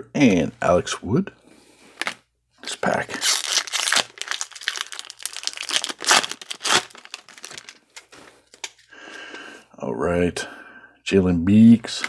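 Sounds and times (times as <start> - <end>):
card pack wrapper crinkling and tearing: 2.0 - 8.9.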